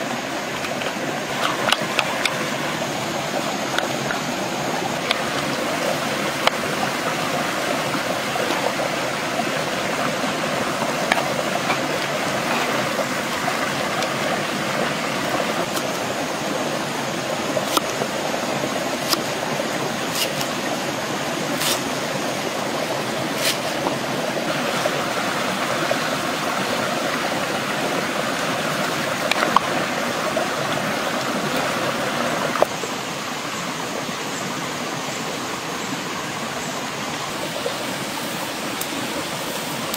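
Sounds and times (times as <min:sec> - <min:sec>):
shallow stream rushing: 0:00.0 - 0:39.9
knife chopping on wooden board: 0:20.1 - 0:20.5.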